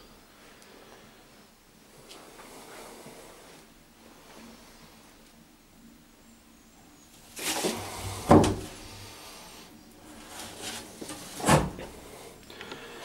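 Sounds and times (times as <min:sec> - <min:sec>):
cupboard door being handled: 0:08.1 - 0:08.7.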